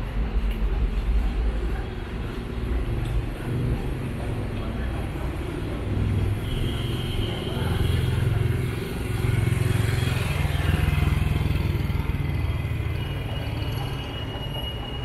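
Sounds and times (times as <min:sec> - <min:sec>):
motorcycle passing by: 0:07.6 - 0:13.0.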